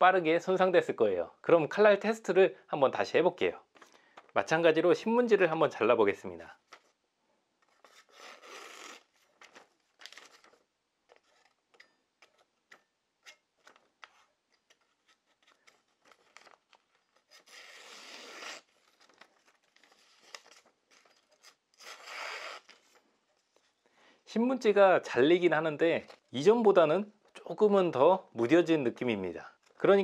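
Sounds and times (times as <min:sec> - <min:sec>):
paper crinkling: 0:07.6 - 0:23.8.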